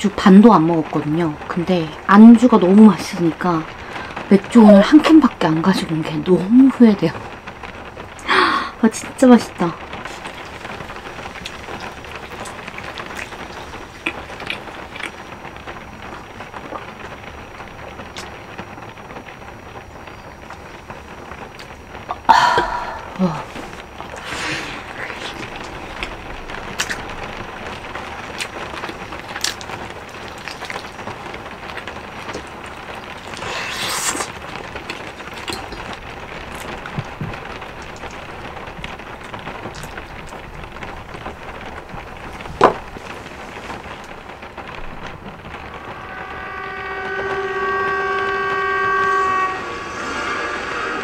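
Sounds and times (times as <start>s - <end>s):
rain on a caravan roof: 0.0s - 51.0s
held chord from tv: 45.4s - 51.0s.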